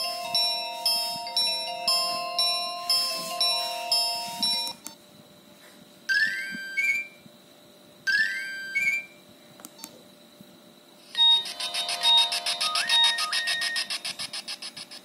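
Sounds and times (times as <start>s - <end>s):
phone alert tone: 11.2s - 14.2s.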